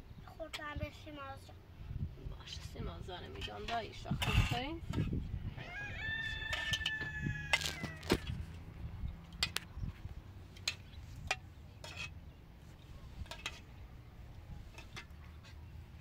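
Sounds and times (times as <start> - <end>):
rooster crowing: 5.5 - 8.3.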